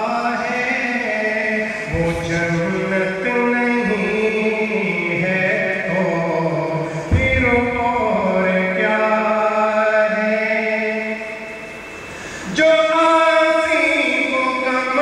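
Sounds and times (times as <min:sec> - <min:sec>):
person singing devotional verse: 0:00.0 - 0:11.6, 0:12.4 - 0:15.0.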